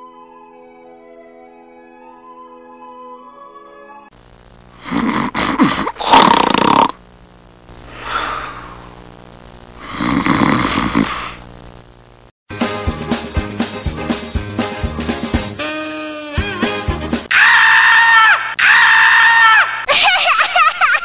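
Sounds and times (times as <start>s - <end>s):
person snoring: 4.7s - 7.0s, 7.8s - 9.0s, 9.8s - 11.5s
soft breath: 7.9s - 9.0s.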